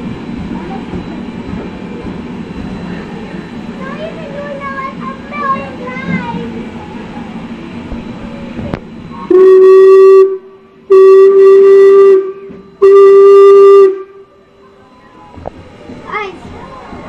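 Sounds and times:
steam whistle blasts: 0:09.2 - 0:14.4.

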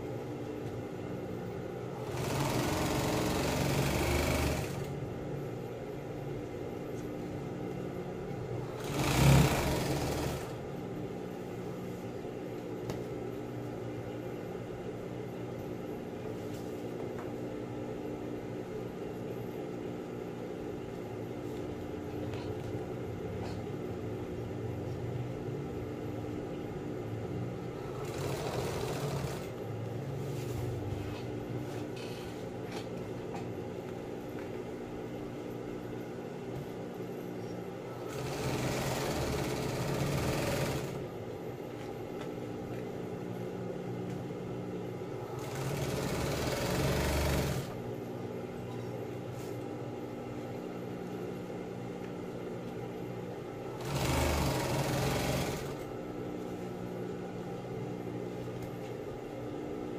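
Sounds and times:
sewing machine motor humming: 0:01.9 - 0:05.0, 0:08.6 - 0:10.7, 0:27.8 - 0:29.6, 0:37.9 - 0:41.1, 0:45.2 - 0:47.8, 0:53.7 - 0:55.9.

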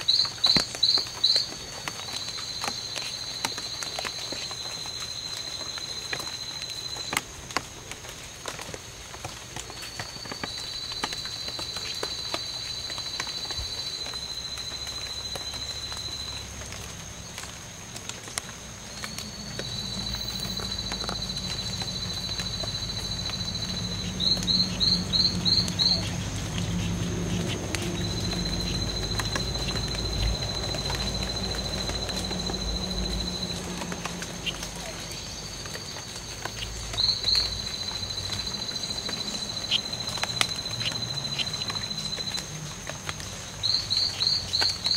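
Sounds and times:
frogs buzzing trills: 0:00.0 - 0:07.2, 0:18.6 - 0:44.9.

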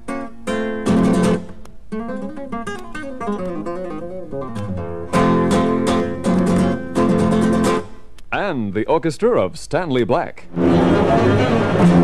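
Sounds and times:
acoustic guitar music: 0:00.0 - 0:12.0.

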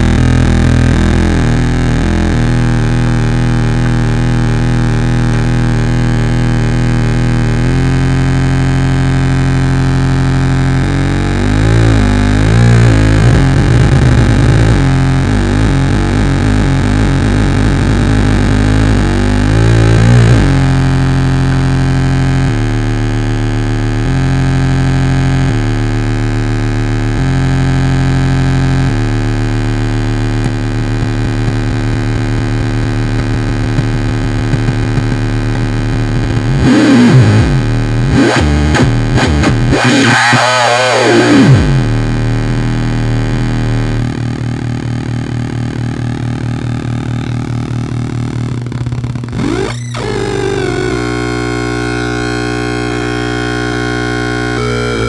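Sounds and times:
buzzing electronic tones: 0:00.0 - 0:55.0.

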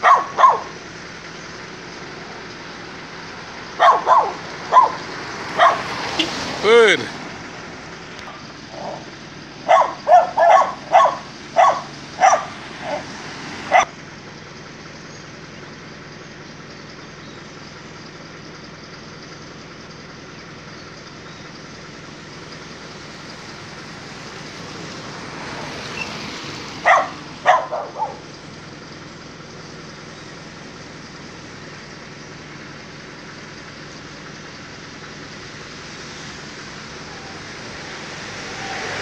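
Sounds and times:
dogs barking: 0:00.0 - 0:00.8, 0:03.4 - 0:06.5, 0:08.2 - 0:13.9, 0:26.7 - 0:28.4.

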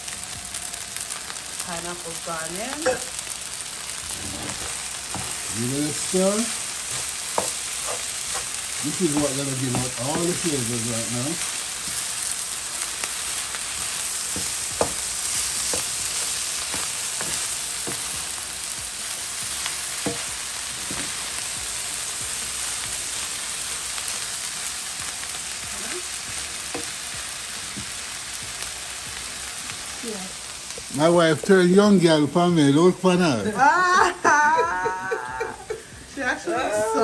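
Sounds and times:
rice sizzling in a skillet: 0:00.0 - 0:37.0
wooden spoon scraping a pan: 0:04.0 - 0:12.1, 0:14.4 - 0:18.1.

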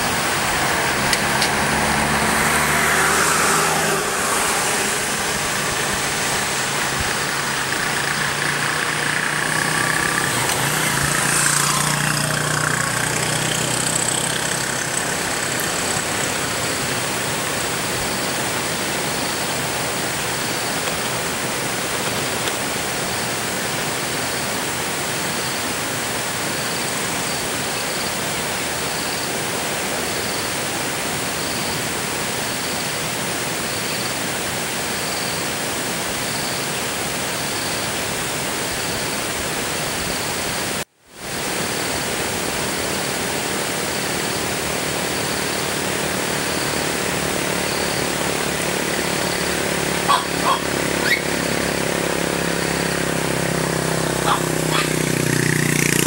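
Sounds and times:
rain falling: 0:00.0 - 0:24.3.

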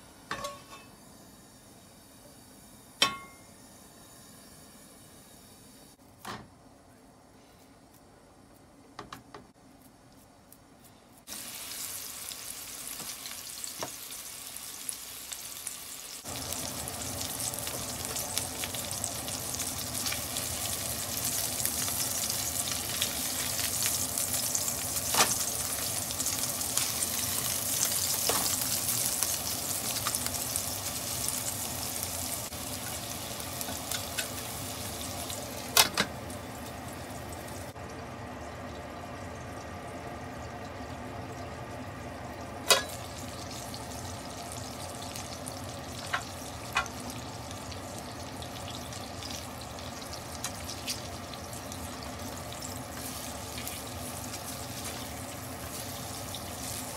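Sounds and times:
meat sizzling in a frying pan: 0:11.3 - 0:37.8, 0:42.6 - 0:56.9.

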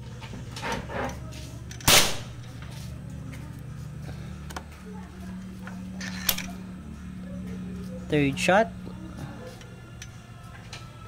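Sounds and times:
air rifle shot crack: 0:01.9 - 0:02.4.

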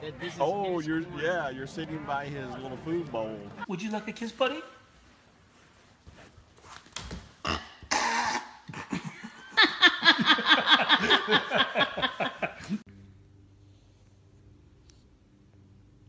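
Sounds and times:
faint low hum: 0:10.8 - 0:16.0.

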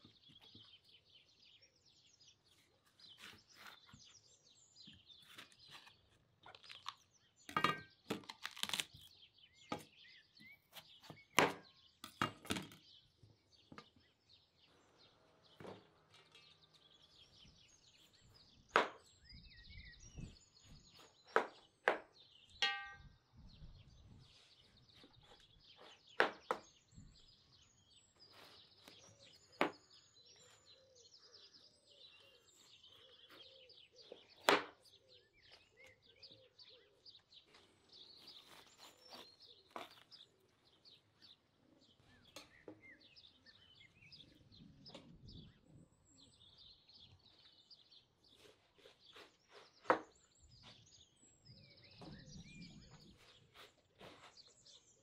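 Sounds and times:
small birds chirping: 0:00.0 - 0:55.0
ringing clink: 0:22.6 - 0:23.2.

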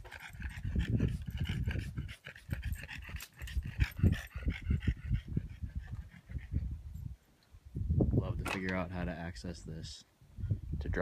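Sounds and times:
dog panting: 0:00.0 - 0:06.8.

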